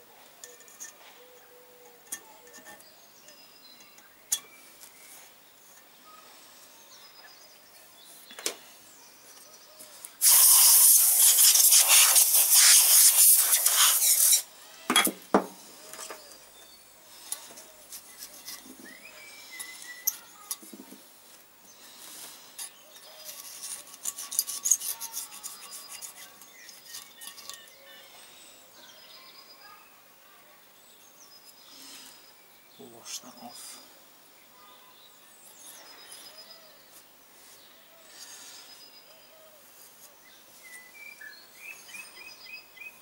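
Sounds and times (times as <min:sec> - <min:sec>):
tools clicking and knocking: 0:01.8 - 0:02.9, 0:22.6 - 0:27.8
aerosol spray can hissing: 0:10.2 - 0:14.5.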